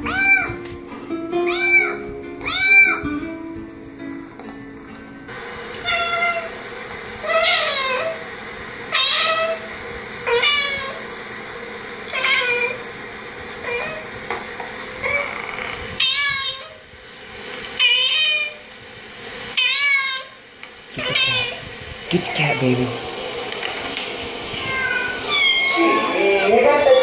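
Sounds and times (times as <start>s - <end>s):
cat meowing through tv speakers: 0.0s - 0.6s, 1.5s - 3.0s, 12.1s - 12.8s, 16.0s - 16.8s, 19.6s - 20.4s, 21.0s - 21.6s, 24.6s - 26.5s.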